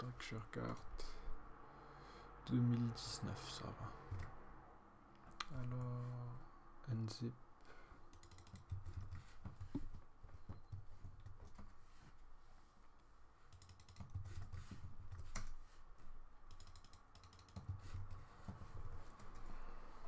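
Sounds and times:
typing on a computer keyboard: 8.1 - 11.8, 13.5 - 15.6, 16.4 - 19.6.

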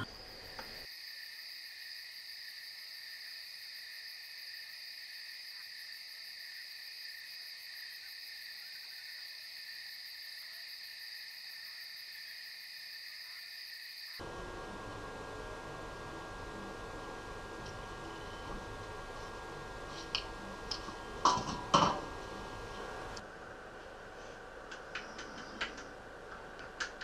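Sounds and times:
crickets trilling: 0.0 - 14.3, 17.9 - 23.2.

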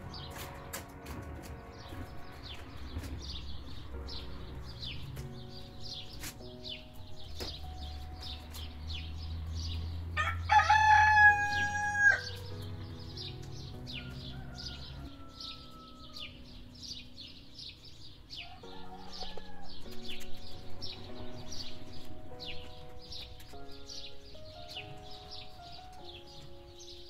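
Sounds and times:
rooster crowing: 10.2 - 12.4, 13.9 - 16.4, 18.4 - 19.9.

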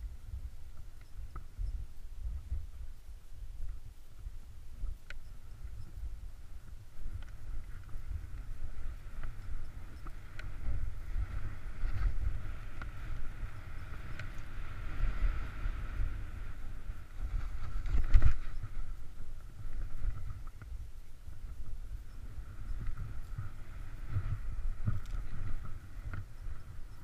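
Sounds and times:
wind rumble on microphone: 0.0 - 27.0
light clicks: 4.8 - 6.1, 6.7 - 10.9, 13.8 - 14.6.

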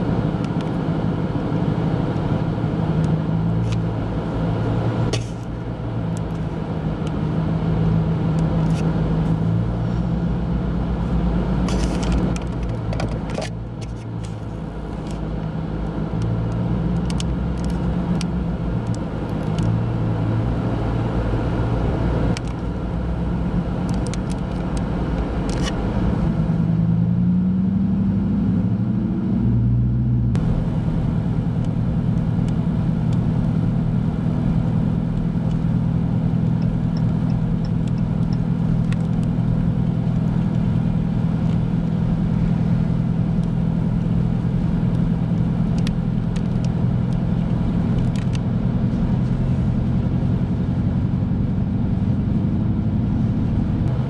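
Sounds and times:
vehicle engine idling: 30.3 - 54.0.

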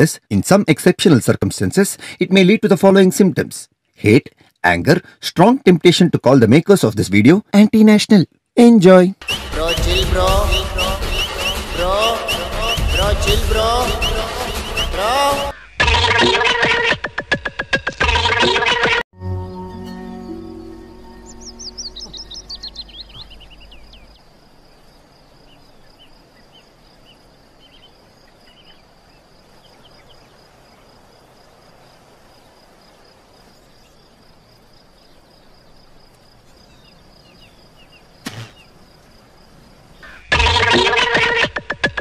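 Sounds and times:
bird chirps: 9.2 - 17.0, 20.1 - 30.9, 36.5 - 38.8
high insect drone: 20.1 - 40.3
sharp knock: 38.2 - 38.6.

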